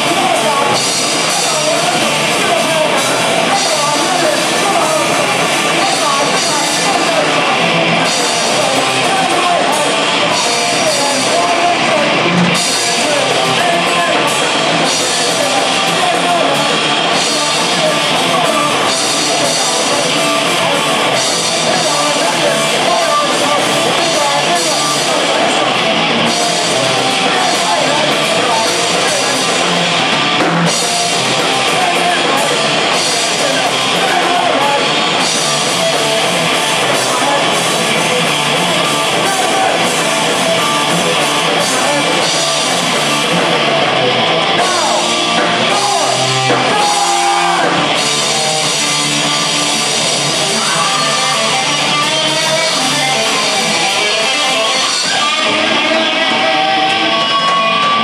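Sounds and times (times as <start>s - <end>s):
drum kit with cymbals: 0.0s - 58.0s
electric guitars: 0.0s - 58.0s
person singing: 0.0s - 58.0s.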